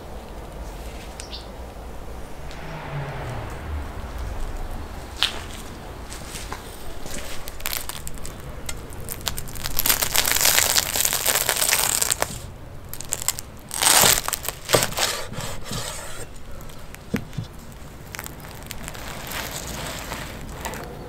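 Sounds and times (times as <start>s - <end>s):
cleaver crunching through flatbread: 7.0s - 21.0s.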